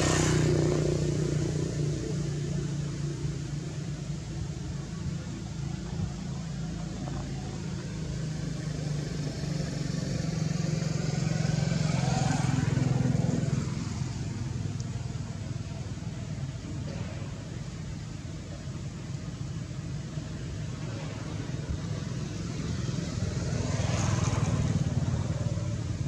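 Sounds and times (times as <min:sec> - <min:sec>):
vehicle engine driving past: 0:05.6 - 0:17.9, 0:20.6 - 0:26.0.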